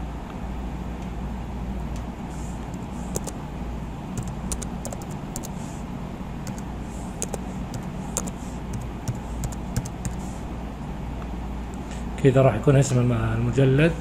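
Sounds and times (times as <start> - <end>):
steady low hum: 0.0 - 14.0
keyboard typing: 2.7 - 3.4, 4.2 - 5.6, 6.4 - 6.6, 7.2 - 10.2.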